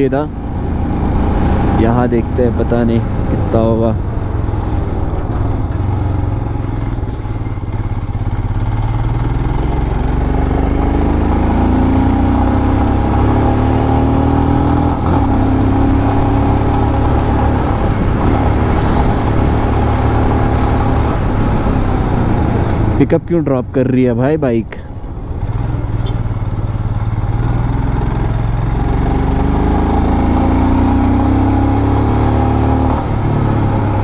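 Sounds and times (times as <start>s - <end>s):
man talking: 0.0s - 0.4s, 1.8s - 4.0s, 23.0s - 24.9s
motorcycle engine running: 4.0s - 23.0s, 25.0s - 34.0s.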